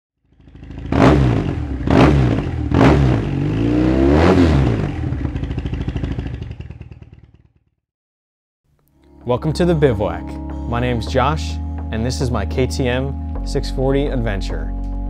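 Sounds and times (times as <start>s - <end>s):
motorcycle engine revving: 0.2s - 7.8s.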